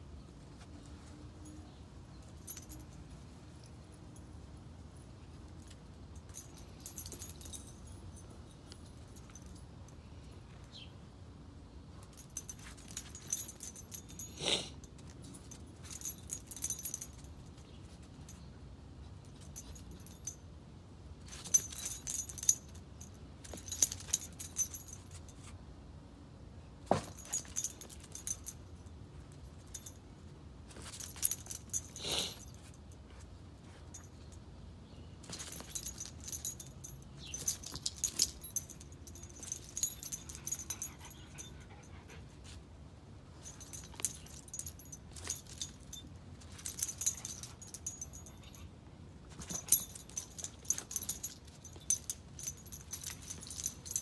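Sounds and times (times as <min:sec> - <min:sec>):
metal dog tags jingling: 0:00.9 - 0:04.4, 0:05.2 - 0:10.8, 0:11.9 - 0:18.5, 0:19.2 - 0:20.5, 0:21.2 - 0:25.5, 0:26.9 - 0:42.6, 0:43.3 - 0:54.0.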